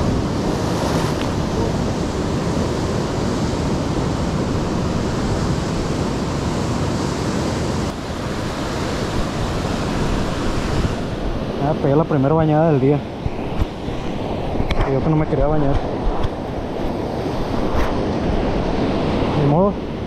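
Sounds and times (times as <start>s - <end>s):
ocean surf over rocks: 0.0s - 20.0s
wind buffeting microphone: 12.9s - 19.6s.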